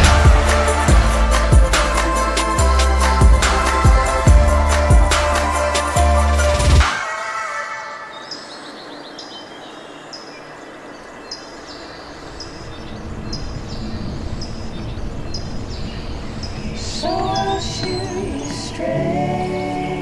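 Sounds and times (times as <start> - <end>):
people singing: 0.0 - 7.3, 16.8 - 20.0.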